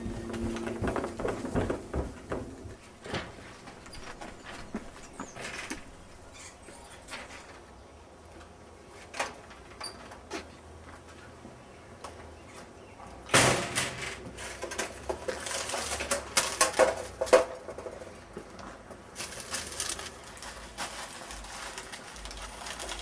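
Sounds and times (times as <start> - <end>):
paper crackling and rustling: 19.2 - 23.0.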